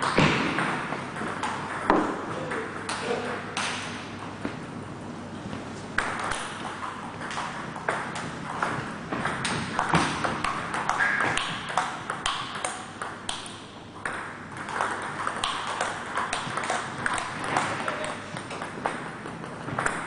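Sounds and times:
table tennis ball clicks: 6.0s - 20.0s.

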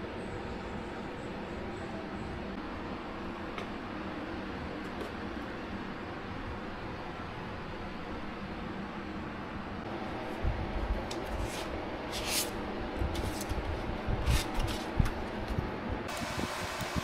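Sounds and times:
fan-like hum: 0.0s - 17.0s
paper rustling: 11.2s - 15.5s.

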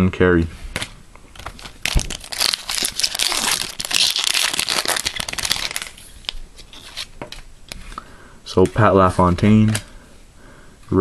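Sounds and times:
foil wrapper crinkling: 1.3s - 7.1s.

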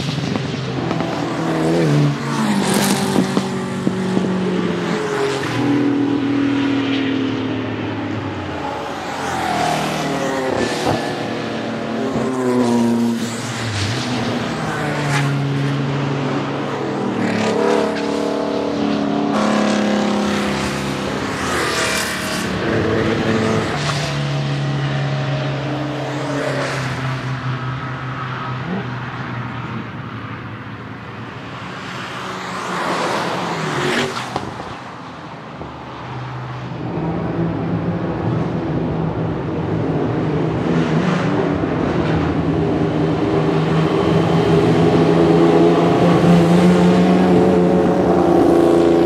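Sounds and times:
race car engines revving: 0.0s - 49.0s.

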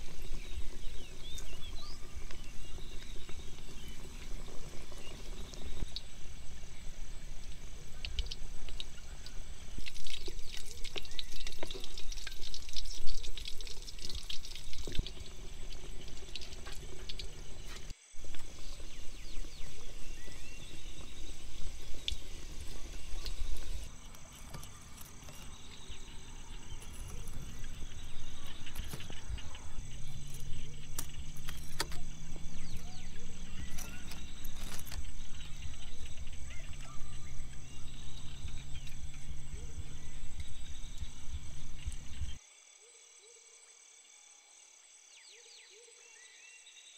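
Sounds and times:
food deep-frying in hot oil: 0.0s - 42.4s
low hum rising in pitch: 25.6s - 42.4s.

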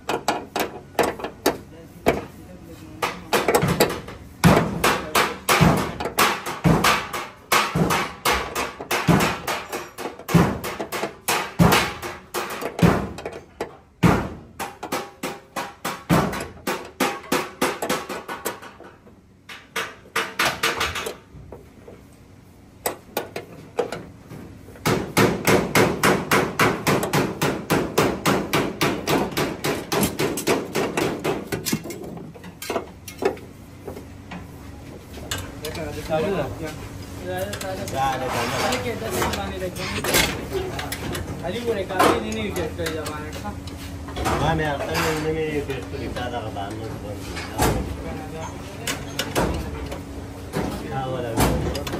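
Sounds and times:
hammer striking sheet metal: 3.0s - 13.2s, 14.0s - 18.8s, 24.8s - 31.9s.

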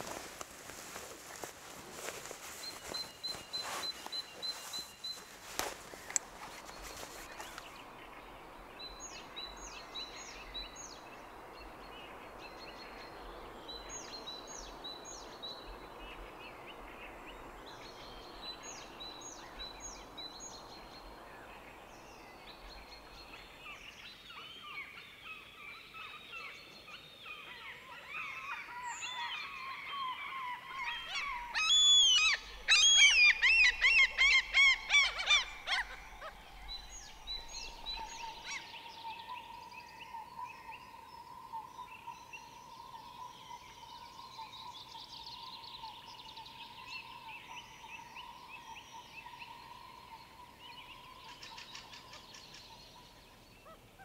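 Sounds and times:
songbird chirping: 0.0s - 54.0s
gulls yelping: 30.8s - 38.6s.

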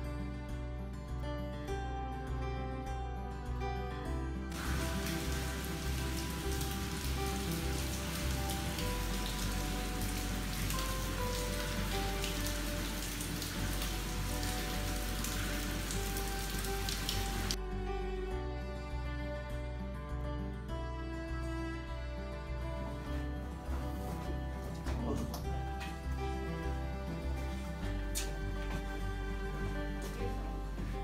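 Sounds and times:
soft background music: 0.0s - 31.0s
water dripping and trickling: 4.5s - 17.6s, 22.9s - 31.0s.

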